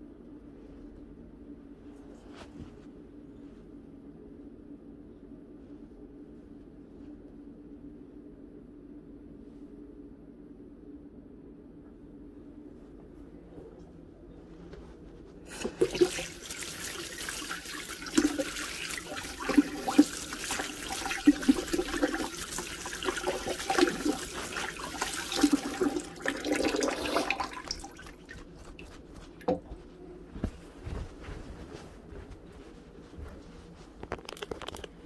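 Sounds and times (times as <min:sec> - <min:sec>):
faucet running into sink: 0:15.5 - 0:28.2.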